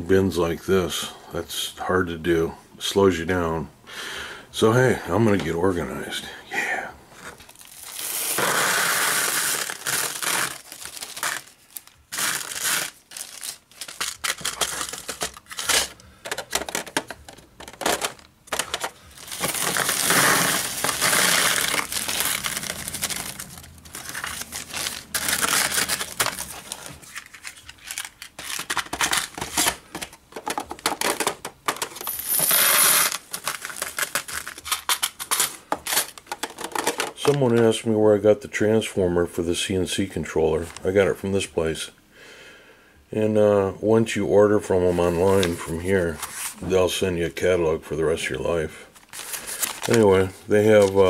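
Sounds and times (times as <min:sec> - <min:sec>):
plastic bags crinkling: 0:07.4 - 0:37.8, 0:49.0 - 0:51.0.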